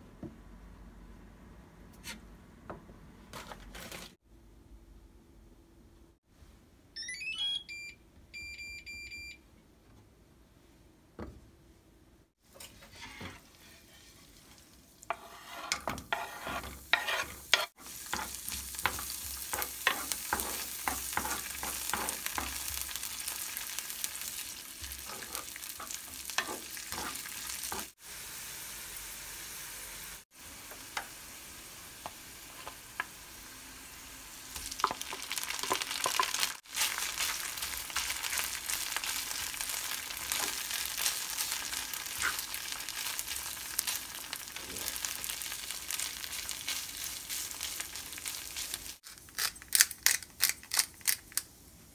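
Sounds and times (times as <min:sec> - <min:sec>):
cooktop rising tone and beeps: 0:07.0 - 0:09.5
wooden spoon scraping pan: 0:12.5 - 0:22.6, 0:24.8 - 0:27.9
butter and garlic sizzling in pan: 0:12.7 - 0:49.1.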